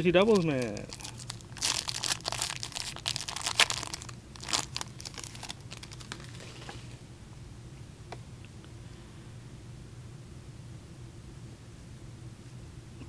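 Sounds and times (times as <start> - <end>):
wrapper tearing and crinkling: 0.2 - 6.6.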